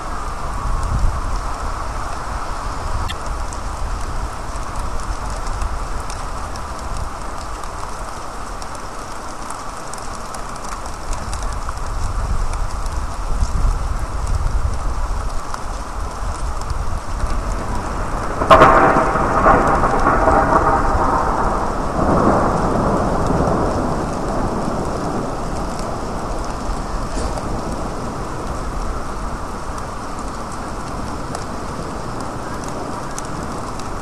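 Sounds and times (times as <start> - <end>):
steady rain falling: 0.0 - 34.0
thunderclap and rumbling thunder: 10.6 - 34.0.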